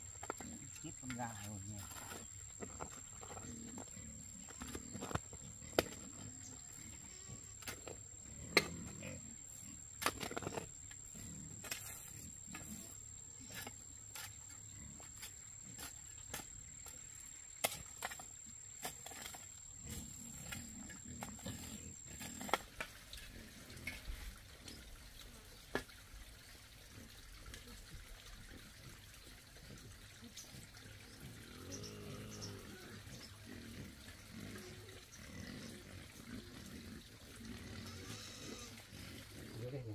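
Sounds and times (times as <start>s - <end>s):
digging tool chopping dry dirt: 10.0s - 10.7s, 17.6s - 20.6s.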